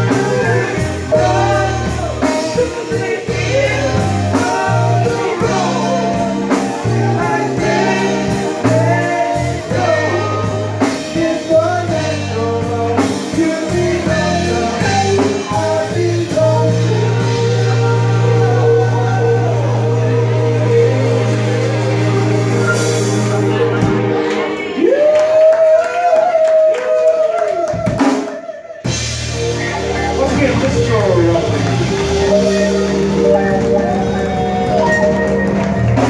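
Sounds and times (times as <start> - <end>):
bass line: 0.0 - 25.5, 28.8 - 36.0
drum kit: 0.0 - 25.6, 27.5 - 36.0
person singing: 0.0 - 36.0
electric guitar: 28.9 - 36.0.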